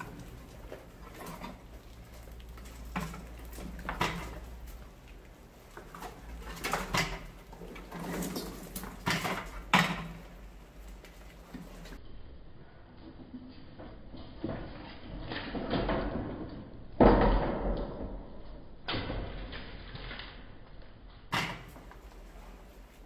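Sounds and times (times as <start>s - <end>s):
rats scrabbling in bucket: 0.0s - 12.0s.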